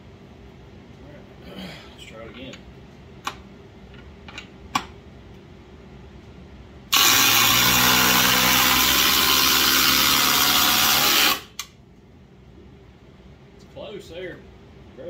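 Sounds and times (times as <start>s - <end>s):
impact drivers hammering: 6.9s - 11.7s.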